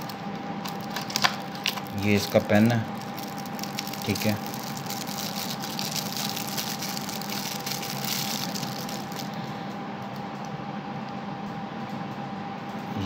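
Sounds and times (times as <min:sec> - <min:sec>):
plastic wrapper crinkling: 0:00.0 - 0:09.5
steady electrical hum: 0:00.0 - 0:13.0.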